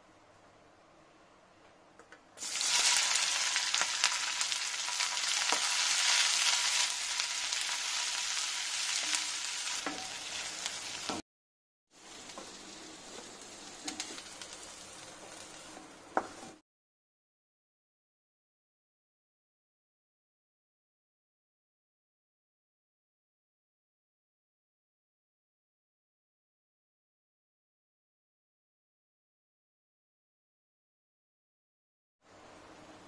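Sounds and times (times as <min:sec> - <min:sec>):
onions sizzling in hot oil: 0:02.4 - 0:11.2, 0:11.9 - 0:16.6.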